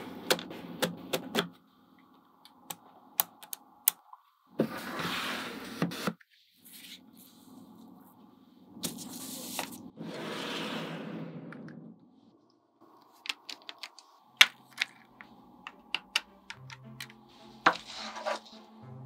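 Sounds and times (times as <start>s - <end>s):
magnetic balls clicking: 13.0s - 17.2s.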